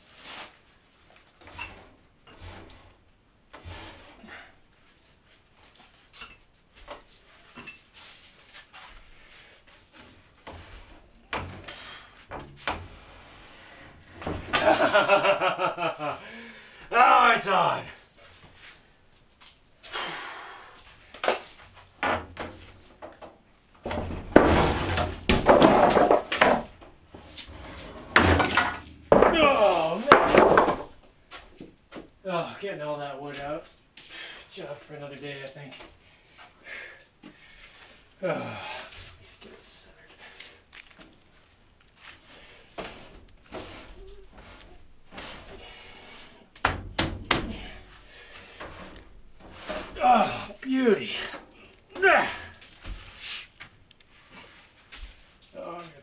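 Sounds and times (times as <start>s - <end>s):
dense clattering and thumping: 14.0s - 15.1s, 22.0s - 31.0s, 42.8s - 50.0s
knocks and bangs: 46.6s - 47.8s.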